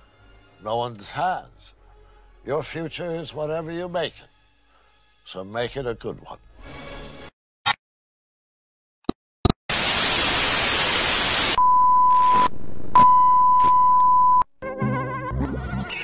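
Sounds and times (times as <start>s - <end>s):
high test-tone beep: 11.6s - 14.4s.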